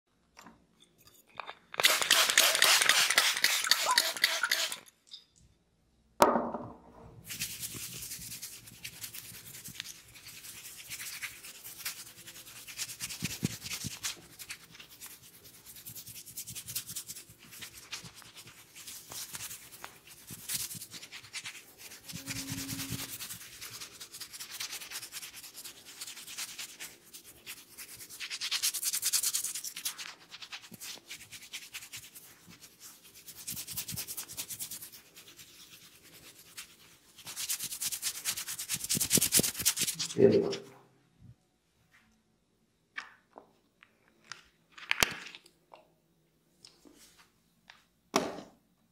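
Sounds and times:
fingers rubbing oiled hair: 1.8s - 4.8s, 7.3s - 40.4s.

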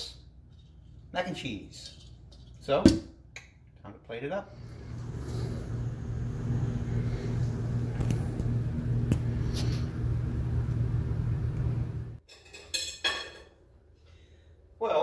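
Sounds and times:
low motor hum: 4.5s - 12.2s.

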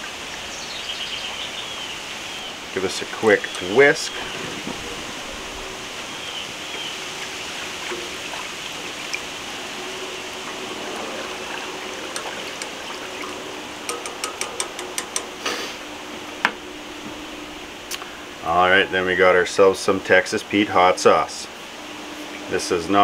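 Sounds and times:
light metallic taps: 13.9s - 15.3s.

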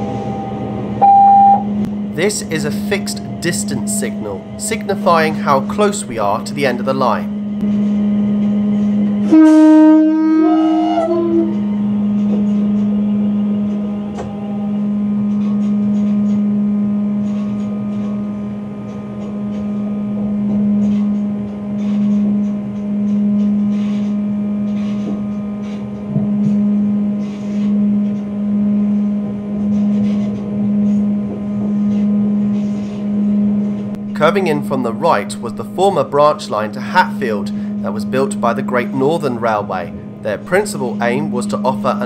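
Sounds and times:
steady train hum: 0.0s - 42.0s
two-note train horn blast: 1.0s - 1.8s, 9.0s - 11.6s.

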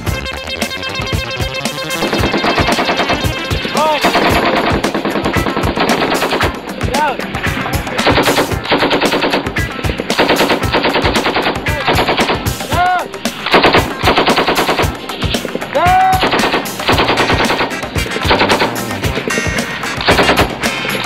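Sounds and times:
machine gun bursts: 1.9s - 7.0s, 8.0s - 12.6s, 13.4s - 15.5s, 16.2s - 20.9s.

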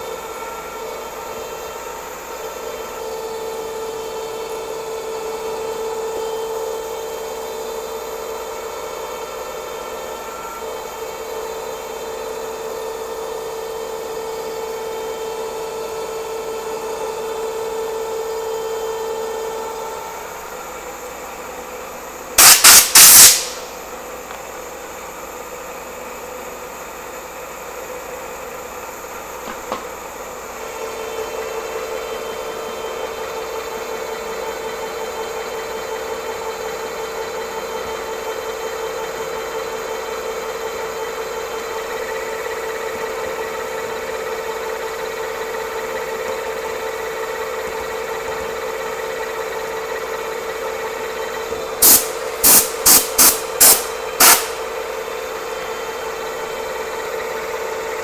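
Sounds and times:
milling machine whine: 0.0s - 22.4s
loud short bursts of noise: 22.4s - 23.8s, 51.8s - 54.7s.

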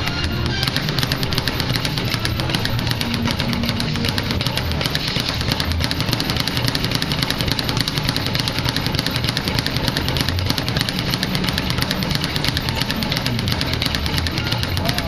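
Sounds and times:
speed bag rattling: 0.0s - 15.0s.

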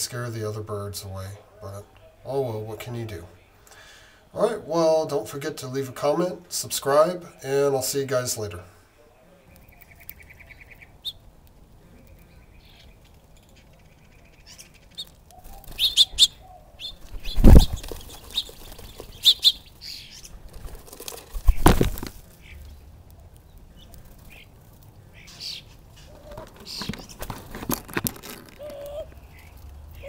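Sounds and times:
small birds chirping: 0.0s - 30.0s
faint fast bird trill: 12.0s - 20.4s
dove wings flapping: 17.0s - 22.5s, 26.1s - 29.2s.

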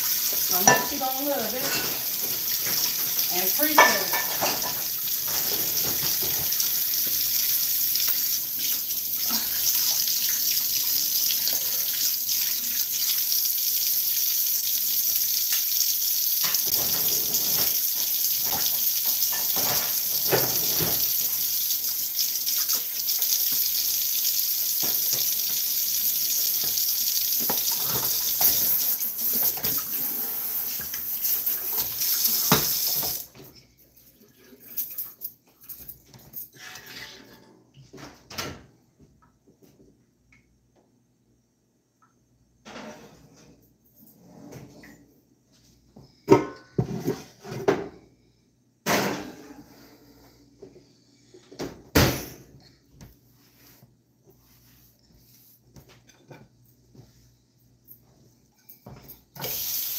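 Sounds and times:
tap running into a sink: 31.7s - 33.3s.

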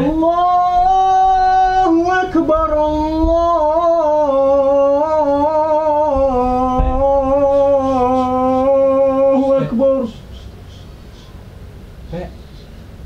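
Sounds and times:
person singing a long note: 0.0s - 10.2s.

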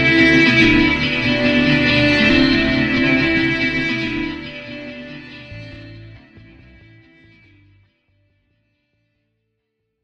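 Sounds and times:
soundtrack music: 0.0s - 7.8s.

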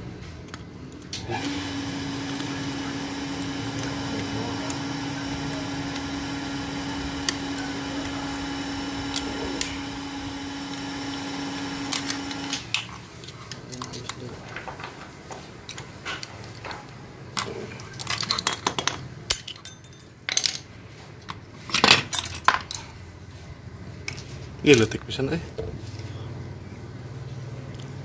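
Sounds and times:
motor running: 1.2s - 12.8s.

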